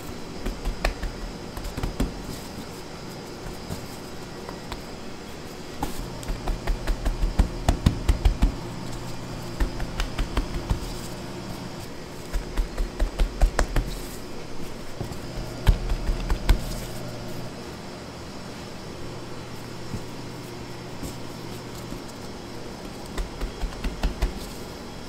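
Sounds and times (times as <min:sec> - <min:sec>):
low machine hum: 0:00.0 - 0:25.0
quick soft thumps: 0:05.8 - 0:11.7, 0:14.9 - 0:17.5, 0:22.9 - 0:24.6.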